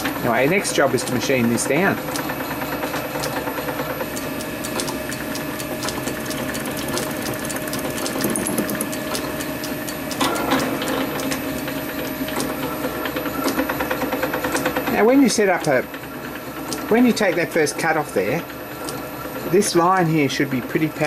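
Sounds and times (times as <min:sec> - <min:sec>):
lathe motor and gear hum: 0:00.0 - 0:21.0
fast even ticking: 0:00.3 - 0:11.7.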